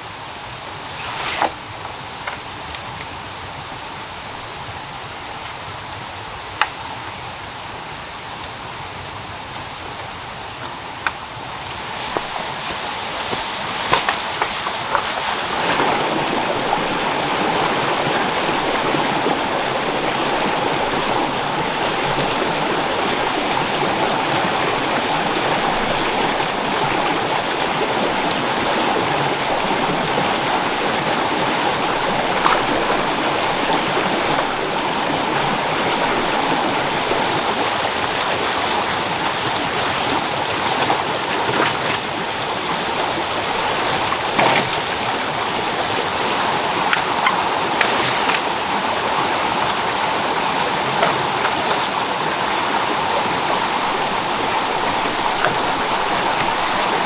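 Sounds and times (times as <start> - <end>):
stream rushing over rocks: 0.0 - 57.0.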